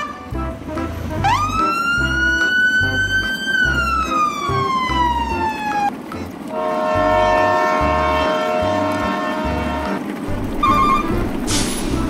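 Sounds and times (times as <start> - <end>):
siren-like whistle tone: 10.6 - 11.2.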